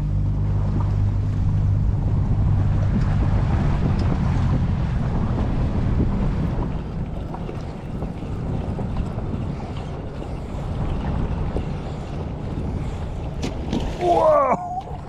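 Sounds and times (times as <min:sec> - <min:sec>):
motorboat engine humming: 0:00.0 - 0:15.0
wind buffeting microphone: 0:00.0 - 0:15.0
water hissing along hull: 0:05.9 - 0:15.0.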